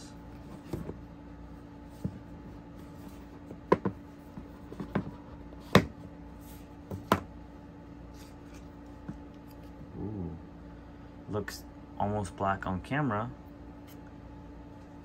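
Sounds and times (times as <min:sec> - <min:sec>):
taps and knocks on cardboard box: 0:03.4 - 0:06.0, 0:06.9 - 0:07.3.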